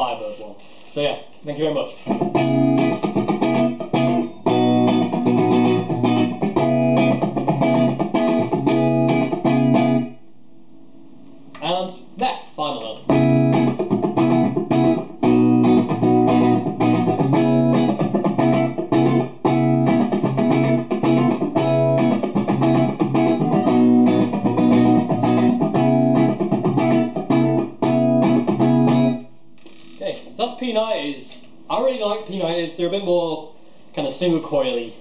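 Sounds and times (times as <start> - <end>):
loud electric guitar: 2.1 - 10.1, 13.1 - 29.2.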